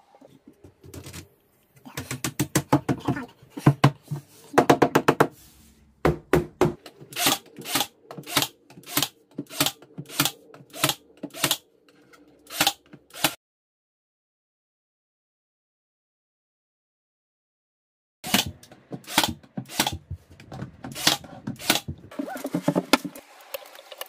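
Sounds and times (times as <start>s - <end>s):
nail gun firing: 7.1s - 11.6s, 12.5s - 13.4s, 18.2s - 20.1s, 20.9s - 21.9s.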